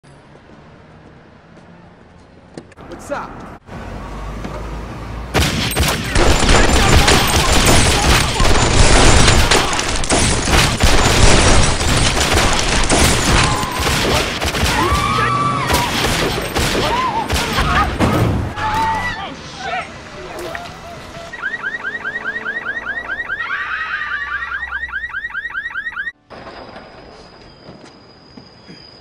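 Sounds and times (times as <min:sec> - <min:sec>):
rapid pistol shots: 0:05.5 - 0:14.6.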